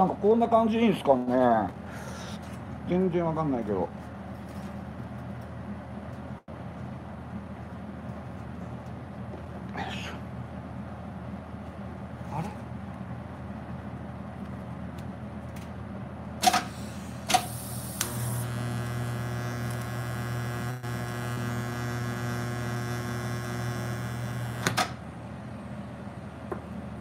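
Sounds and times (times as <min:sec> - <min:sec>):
faint machine hum: 0:00.0 - 0:27.0
welder click: 0:16.4 - 0:25.0
welding arc buzzing: 0:16.4 - 0:25.0
welding arc crackles: 0:16.4 - 0:25.0.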